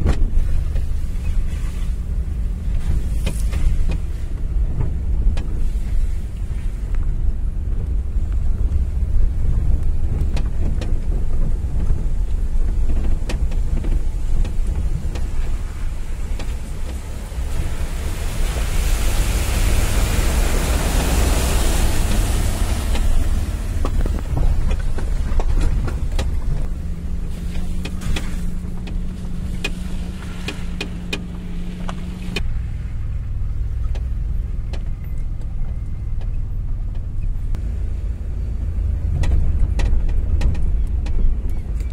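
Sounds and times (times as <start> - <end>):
car engine rumbling: 0.0 - 41.9
tyres on dirt track: 0.0 - 41.9
tyres crunching over gravel: 7.8 - 32.5.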